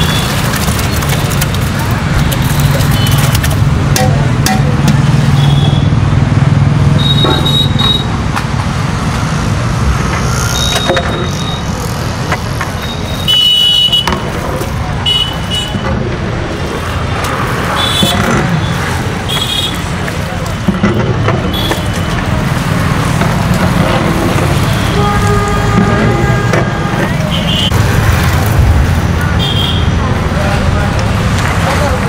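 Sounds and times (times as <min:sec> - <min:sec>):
vehicle engines passing: 0:00.0 - 0:32.0
heavy low rumble: 0:23.5 - 0:31.5.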